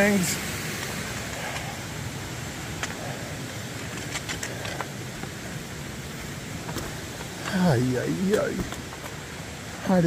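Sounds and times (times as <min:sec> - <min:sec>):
steady rushing noise: 0:00.0 - 0:10.0.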